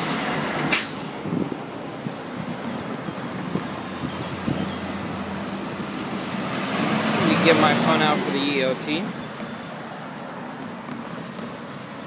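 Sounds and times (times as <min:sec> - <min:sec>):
wind blowing across microphone: 0:00.0 - 0:07.5.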